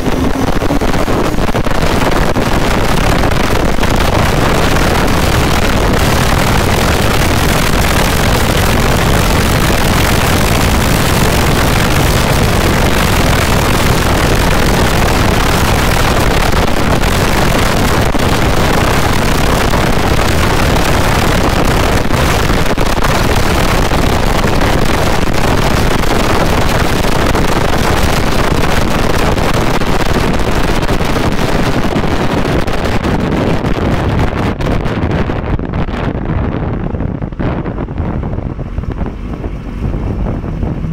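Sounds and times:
loud wind noise: 0.0 - 40.9
motorcycle engine running: 0.0 - 40.9.

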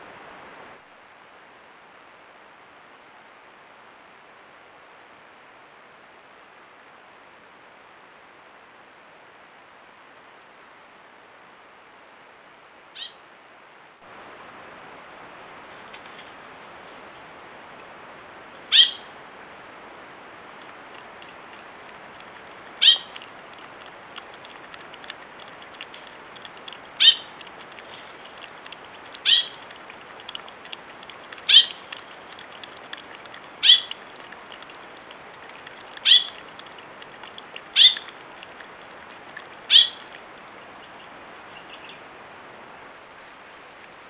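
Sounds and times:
steady outdoor hiss: 0.0 - 44.0
high-pitched animal calls: 18.7 - 19.1, 22.8 - 30.7, 31.3 - 34.7, 35.8 - 36.8, 37.4 - 40.2.

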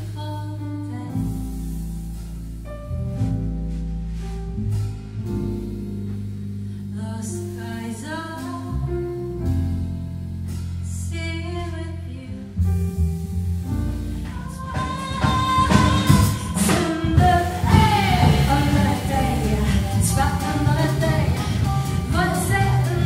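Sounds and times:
woman singing: 0.0 - 1.4, 7.0 - 8.9, 10.9 - 12.5, 14.2 - 23.0
double bass: 0.0 - 23.0
drums: 0.0 - 23.0
piano: 0.0 - 23.0.

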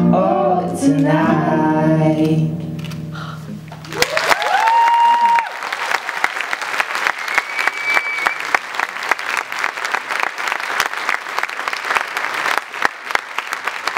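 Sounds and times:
audience applauding: 3.7 - 13.9
person whistling: 7.2 - 8.5.

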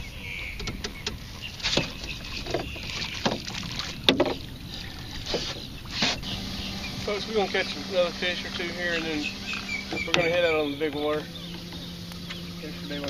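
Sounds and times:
water splashing and dripping: 0.6 - 13.0
knocks against boat hull: 2.5 - 4.4.

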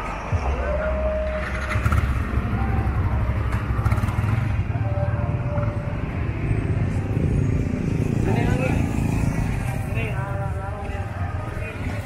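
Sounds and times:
low rumble of street traffic: 0.0 - 12.0
motorcycle engine passing by: 1.5 - 10.2.

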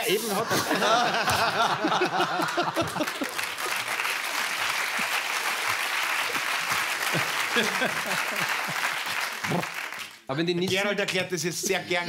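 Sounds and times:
audience laughter: 0.1 - 3.8, 7.0 - 9.1
audience applauding: 1.0 - 10.3.

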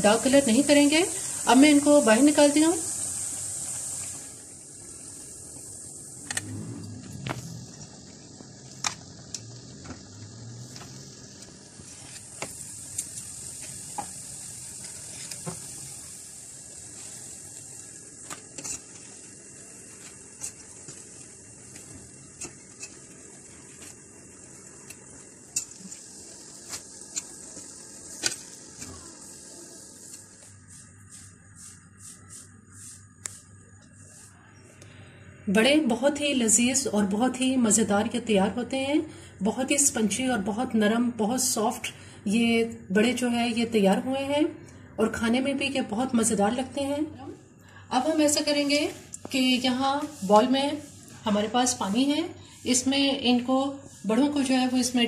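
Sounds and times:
fritters deep-frying in oil: 0.0 - 32.2.

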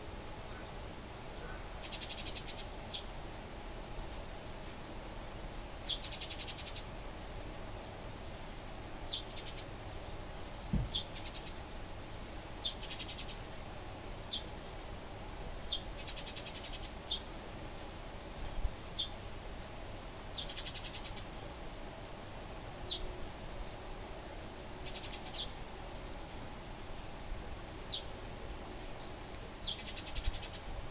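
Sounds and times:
sparrows chirping: 1.4 - 3.1, 5.2 - 6.9, 9.1 - 13.4, 14.3 - 15.0, 15.7 - 17.3, 18.9 - 19.2, 20.0 - 21.6, 22.8 - 23.9, 24.8 - 26.2, 27.8 - 28.1, 29.0 - 30.7
low thump: 10.7 - 11.0.

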